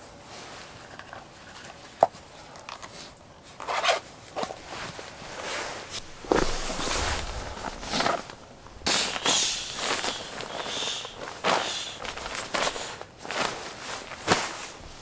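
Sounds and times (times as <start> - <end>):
nylon sleeping bag rustling: 4.6 - 15.0.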